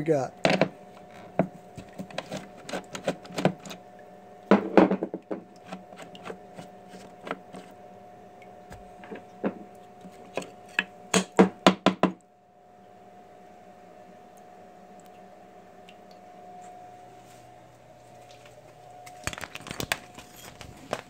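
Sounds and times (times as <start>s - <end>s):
steady machine hum: 0.0s - 21.0s
knocks and clacks of parts handled: 19.1s - 21.0s.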